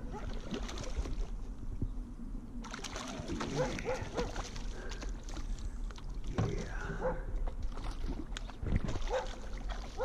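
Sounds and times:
fish splashing at water surface: 2.6 - 5.6.

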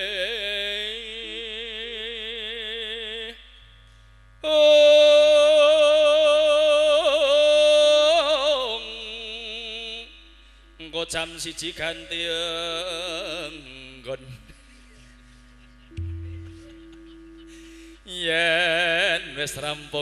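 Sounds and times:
man singing through a microphone: 0.0 - 3.4, 4.4 - 10.2, 10.8 - 14.6, 18.0 - 20.0
electronic keyboard notes: 15.9 - 18.1.

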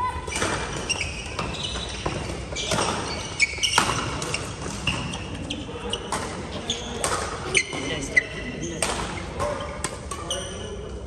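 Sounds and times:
racket hitting shuttlecock: 0.3 - 5.1, 6.0 - 7.8
sneakers squeaking on court: 0.3 - 10.9.

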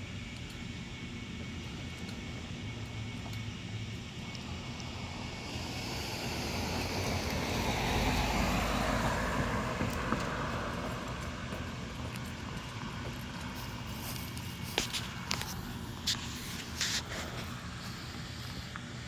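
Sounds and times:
vehicle passing by: 4.7 - 14.4.

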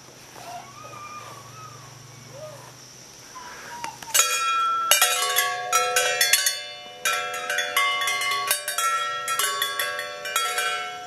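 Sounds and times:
faint low hum: 0.0 - 11.0
metal wind chime ringing: 4.1 - 11.0.

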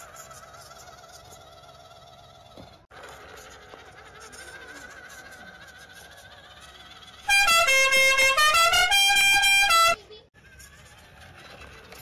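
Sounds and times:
loud horn-like music: 7.3 - 10.0.

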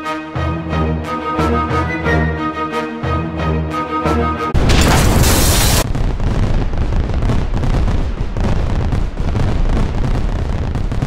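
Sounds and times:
loud hissing burst: 4.8 - 5.9.

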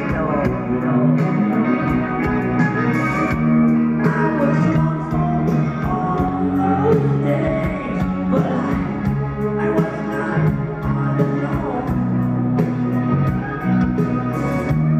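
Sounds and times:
man singing: 0.0 - 3.0, 3.9 - 12.4
rock band playing: 0.0 - 14.9.

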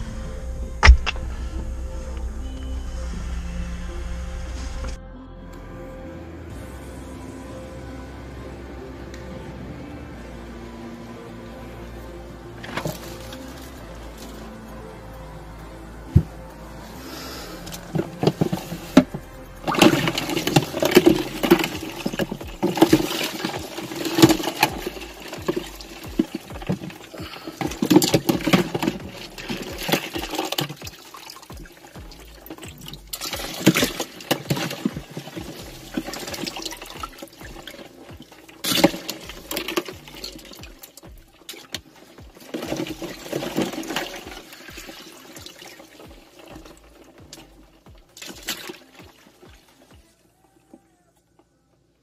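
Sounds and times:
ice water sloshing and splashing: 12.3 - 14.8, 16.2 - 50.1.

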